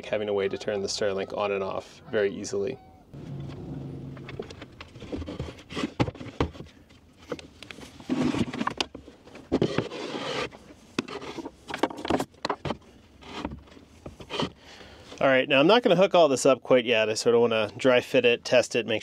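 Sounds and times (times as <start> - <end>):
wood scraping: 3.2 - 14.6.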